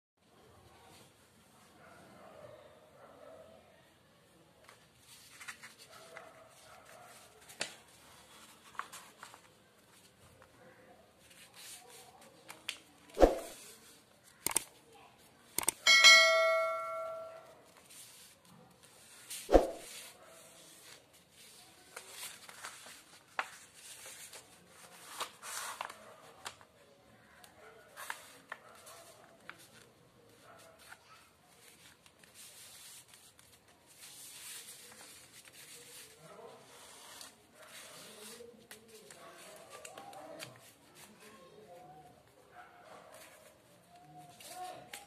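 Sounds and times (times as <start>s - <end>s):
paper rustling: 4.6s - 10.6s, 11.2s - 14.4s, 17.6s - 26.7s, 27.9s - 41.3s
paper scraping on table: 13.2s - 13.9s, 19.3s - 20.1s.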